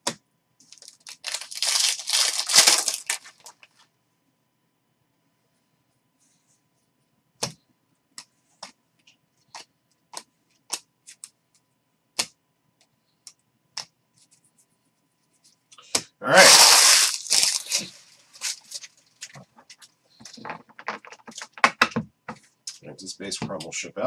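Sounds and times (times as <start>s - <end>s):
rustling scraping burst: 16.4s - 18.8s.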